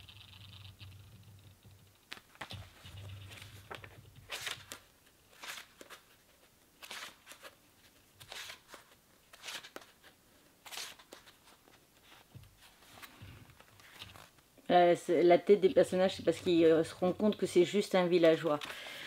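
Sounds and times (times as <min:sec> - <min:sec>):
paper pages rustling: 0:02.1 - 0:14.4, 0:16.2 - 0:19.0.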